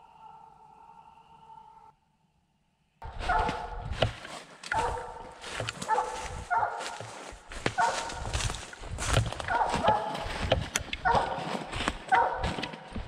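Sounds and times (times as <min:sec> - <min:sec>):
hound barking: 0:03.0 - 0:04.0, 0:04.6 - 0:12.9.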